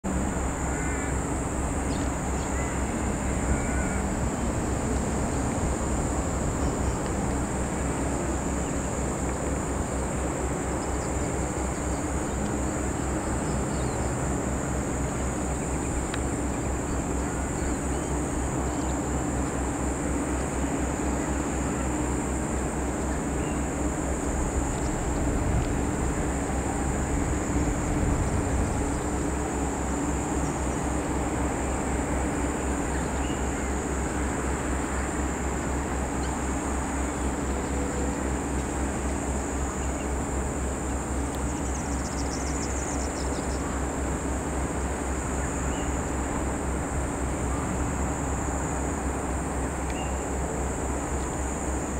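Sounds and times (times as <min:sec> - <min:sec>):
high-pitched insect drone: 0:00.1 - 0:51.9.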